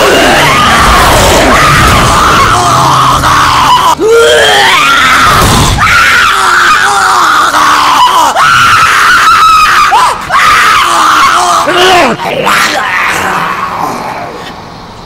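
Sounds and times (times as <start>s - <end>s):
sharp rising shriek: 0.0s - 6.2s
screams and groans: 0.0s - 14.8s.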